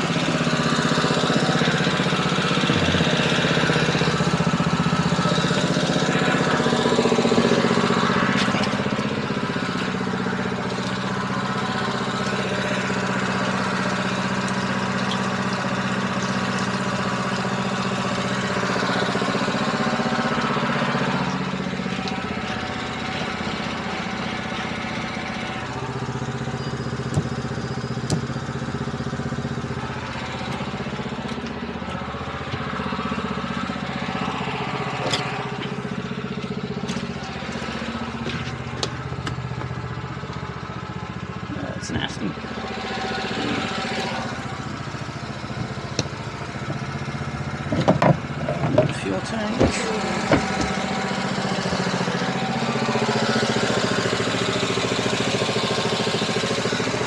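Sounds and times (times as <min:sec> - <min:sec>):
engine running steadily: 0:00.0 - 0:57.0
sharp knocks: 0:49.6 - 0:50.8.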